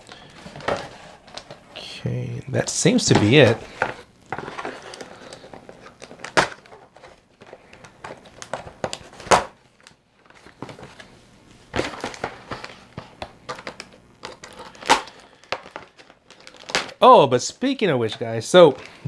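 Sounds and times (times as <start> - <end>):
packaging crinkling: 2.9 - 11.1, 11.7 - 17.8.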